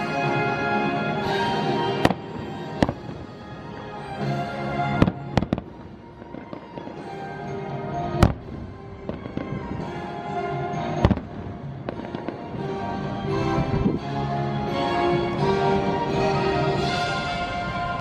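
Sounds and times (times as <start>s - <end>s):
music playing: 0.0s - 18.0s
fireworks bangs: 1.3s - 7.4s, 8.2s - 10.1s, 10.7s - 12.7s.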